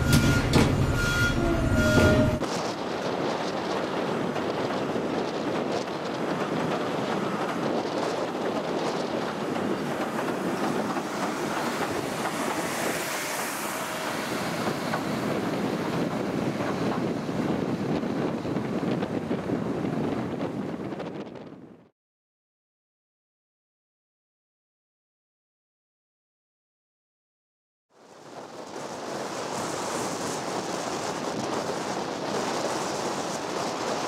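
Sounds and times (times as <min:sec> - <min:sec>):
electric train running slowly: 0:00.0 - 0:21.1, 0:28.0 - 0:34.0
wind noise on microphone: 0:00.0 - 0:21.9, 0:28.2 - 0:34.0.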